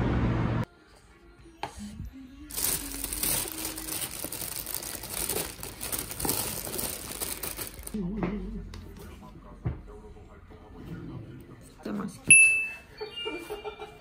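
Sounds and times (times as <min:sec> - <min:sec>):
plastic bag rustling: 0:02.5 - 0:08.0.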